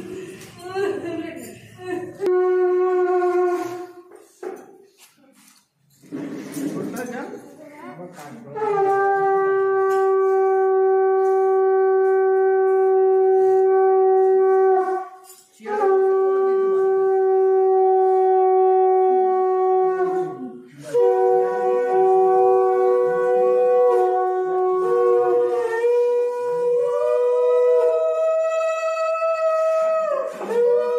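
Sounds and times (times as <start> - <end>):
conch shell blasts: 2.2 - 4.1, 8.5 - 28.8.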